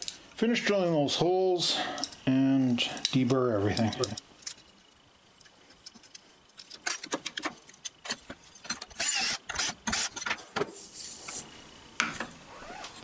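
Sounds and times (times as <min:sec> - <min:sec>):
metal and tools clicking: 0:01.9 - 0:10.4
cordless drill boring through metal: 0:08.9 - 0:10.2.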